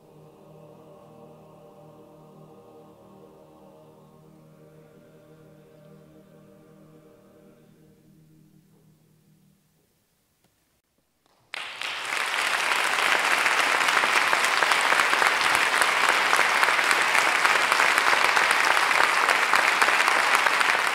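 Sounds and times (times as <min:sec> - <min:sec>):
choir chord: 0:00.0 - 0:09.6
audience applauding: 0:11.3 - 0:20.9.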